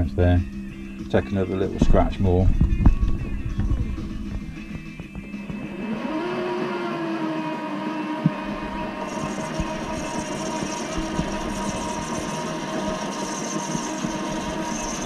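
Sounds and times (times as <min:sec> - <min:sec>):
lathe motor whining: 0:03.4 - 0:15.0
cutting tool hiss: 0:08.3 - 0:15.0.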